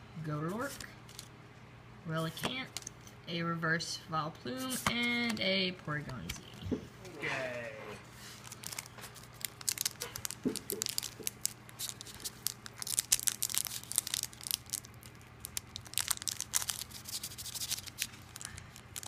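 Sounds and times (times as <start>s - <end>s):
foil wrapper crinkling and tearing: 8.3s - 19.0s.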